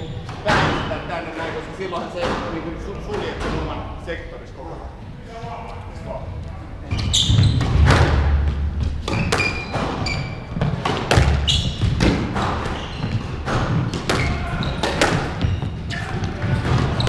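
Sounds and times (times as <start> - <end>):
shoes squeaking on wooden floor: 0.0 - 3.7, 5.0 - 17.0
squash ball hitting rackets and walls: 2.0 - 3.8, 7.0 - 17.0.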